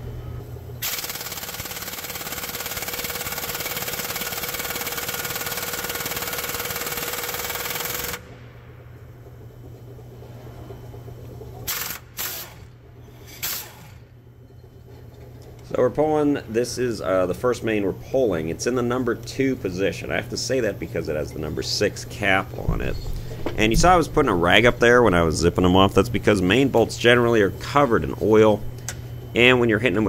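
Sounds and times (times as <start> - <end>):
air impact wrench hammering: 0.8 - 8.3, 11.7 - 14.0.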